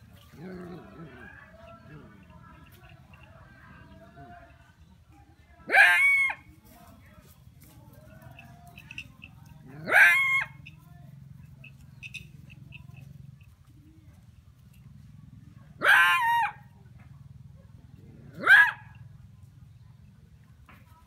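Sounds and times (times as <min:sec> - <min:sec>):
rising animal calls: 0:09.6 - 0:10.7.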